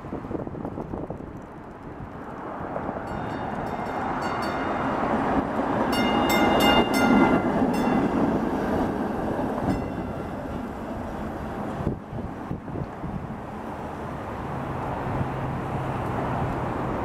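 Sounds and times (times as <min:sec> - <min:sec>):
streetcar rumbling on rails: 0:00.0 - 0:17.0
high ringing tones: 0:03.1 - 0:05.1, 0:05.9 - 0:08.3, 0:09.7 - 0:10.4.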